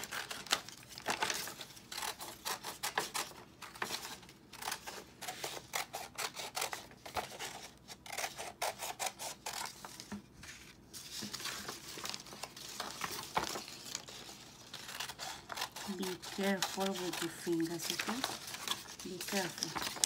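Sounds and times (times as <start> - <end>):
paper rustling: 0.0 - 5.7, 9.6 - 20.0
scissors snipping paper: 0.0 - 10.1, 11.2 - 20.0.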